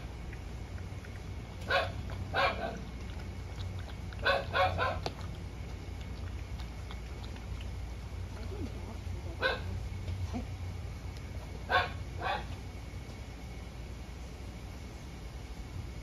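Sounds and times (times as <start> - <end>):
dog barking: 1.7 - 2.8, 4.2 - 5.1, 9.4 - 9.8, 11.7 - 12.5.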